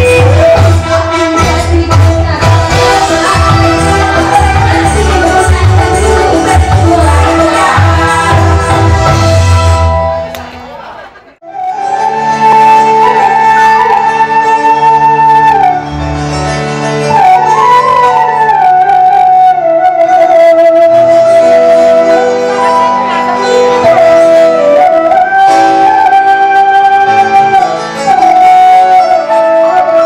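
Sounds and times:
bass guitar: 0:00.0 - 0:10.5
keyboard: 0:00.0 - 0:30.0
bamboo flute melody: 0:11.4 - 0:16.1, 0:17.0 - 0:30.0.

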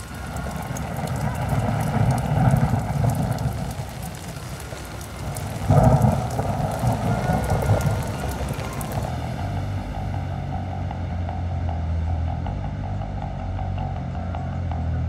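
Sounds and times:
rain pattering: 0:00.0 - 0:11.1
loud low rumbling: 0:00.0 - 0:15.0.

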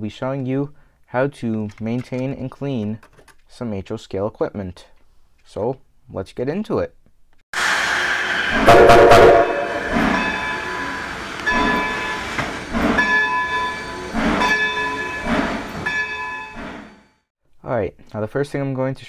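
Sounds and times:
train horn blast: 0:07.6 - 0:11.1
running train noise: 0:07.6 - 0:17.2
bell striking: 0:09.6 - 0:12.2.

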